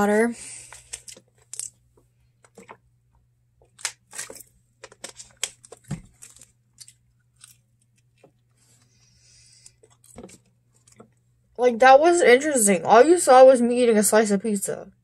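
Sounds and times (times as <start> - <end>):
plastic bottle crinkling: 3.6 - 8.4, 9.6 - 11.2.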